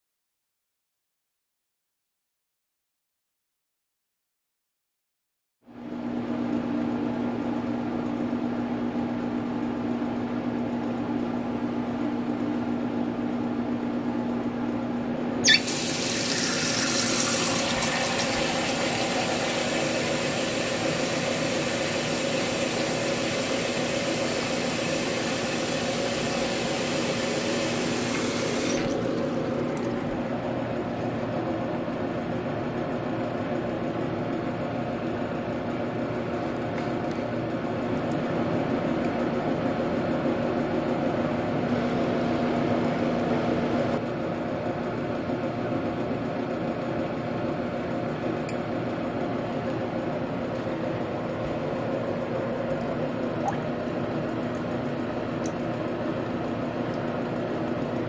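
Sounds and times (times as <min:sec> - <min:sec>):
steady low hum: 0:05.7 - 0:45.5, 0:47.0 - 0:58.0
water running from tap: 0:15.4 - 0:30.1.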